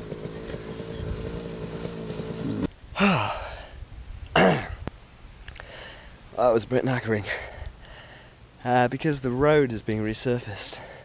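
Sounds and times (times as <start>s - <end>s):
humming drone with low rumble: 0.0s - 2.8s
man panting: 3.0s - 3.8s, 5.6s - 6.1s, 7.2s - 8.3s, 10.7s - 11.0s.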